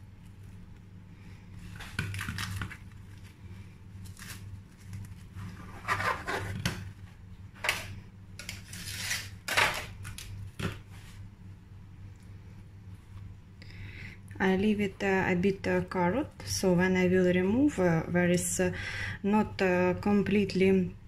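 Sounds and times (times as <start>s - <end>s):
low steady hum: 0.0s - 21.0s
cling film crinkling: 4.0s - 5.5s.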